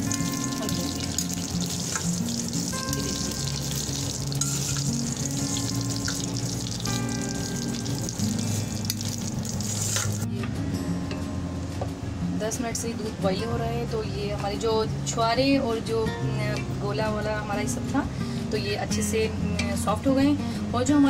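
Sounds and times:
vermicelli sizzling in a pan: 0.0s - 10.3s
background music with held notes: 0.0s - 21.0s.

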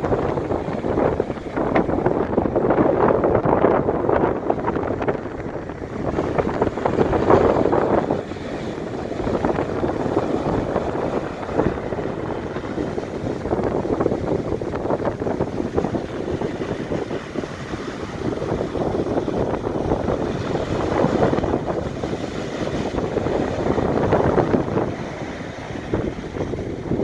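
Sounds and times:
surf breaking on beach: 0.0s - 27.0s
wind buffeting microphone: 0.0s - 27.0s.

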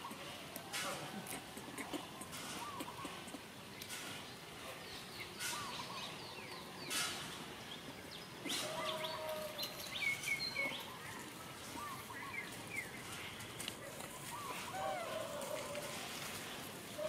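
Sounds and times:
rustling dry leaves: 8.5s - 17.0s.

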